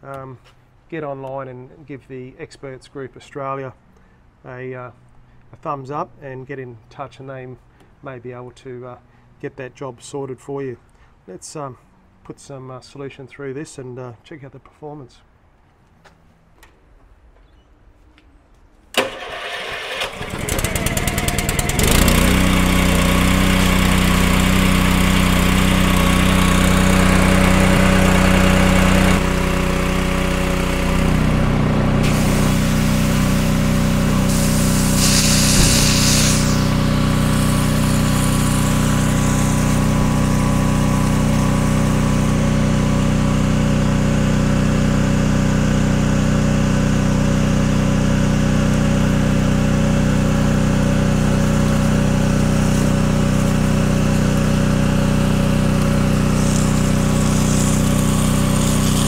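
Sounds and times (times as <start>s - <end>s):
small petrol engine running: 19.0s - 59.0s.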